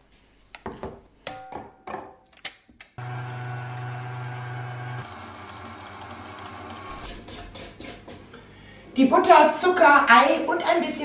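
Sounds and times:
stand mixer whisking: 3.0s - 7.1s.

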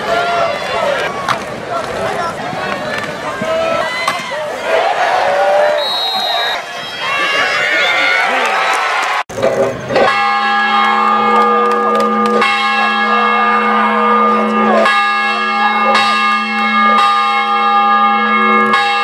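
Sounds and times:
large bell ringing: 9.4s - 19.0s.

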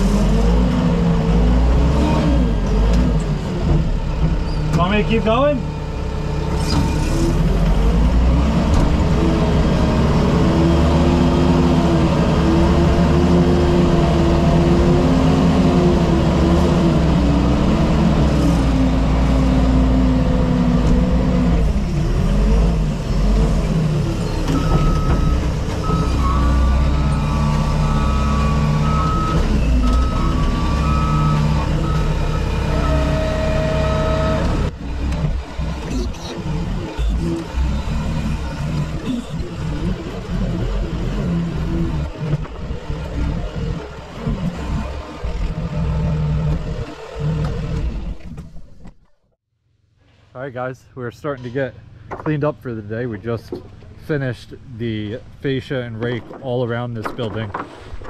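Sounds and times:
diesel engine under load: 0.0s - 58.0s
reversing alarm beeping: 24.6s - 34.7s.

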